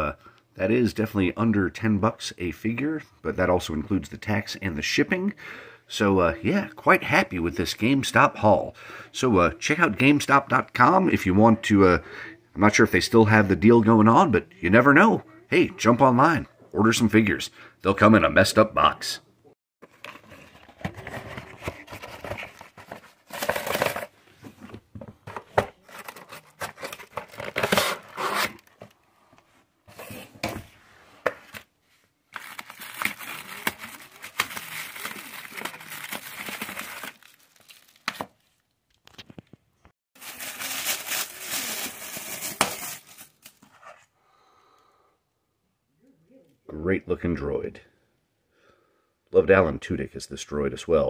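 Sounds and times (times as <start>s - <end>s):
paper packaging crinkling and tearing: 19.8s - 24.1s, 25.8s - 28.8s, 32.3s - 39.3s, 40.2s - 43.9s.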